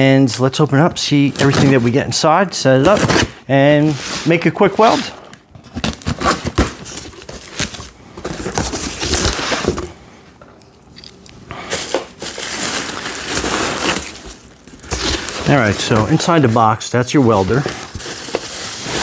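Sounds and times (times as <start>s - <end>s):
cardboard crinkling and rustling: 2.8s - 9.9s, 11.7s - 19.0s.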